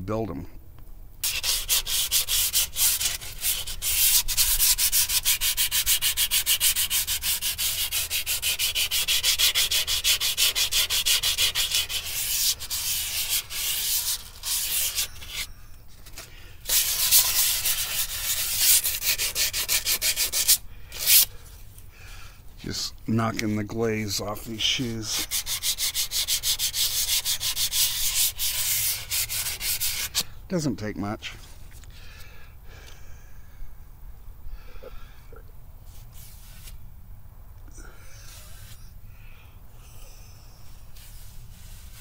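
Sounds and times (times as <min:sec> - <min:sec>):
sandpaper rubbing on brake shoes: 0:01.2 - 0:21.4, 0:24.3 - 0:30.3, 0:35.9 - 0:36.8, 0:38.1 - 0:38.9, 0:40.7 - 0:42.0.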